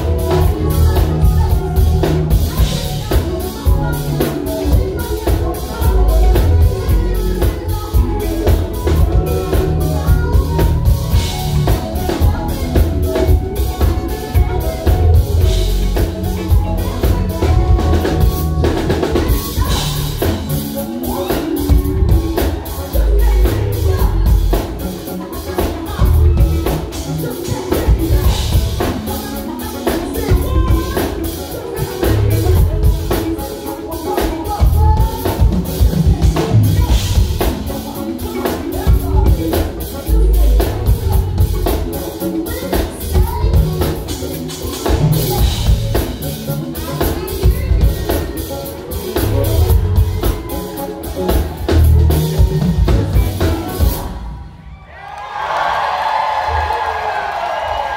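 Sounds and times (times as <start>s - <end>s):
drum kit beat: 0.0s - 54.6s
electric guitar: 0.0s - 54.6s
person singing: 0.0s - 54.7s
bass: 0.0s - 57.9s.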